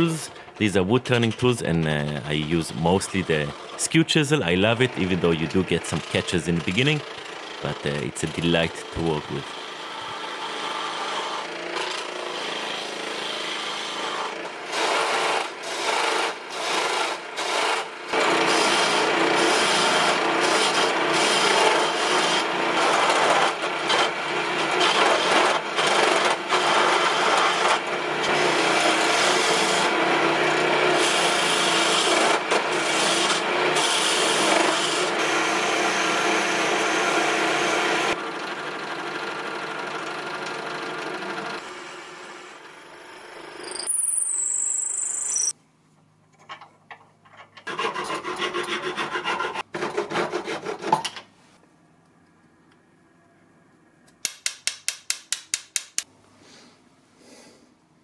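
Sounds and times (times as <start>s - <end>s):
lathe motor hum: 34.8s - 45.5s
chisel scraping spinning wood: 47.6s - 50.9s.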